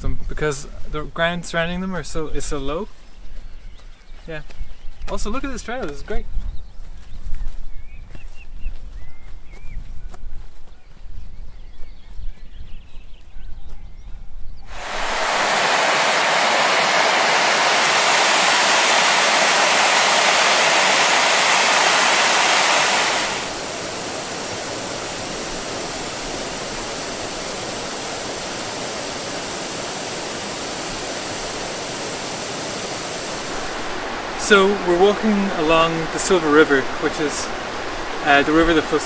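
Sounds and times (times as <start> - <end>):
river water rushing: 14.7 - 38.8.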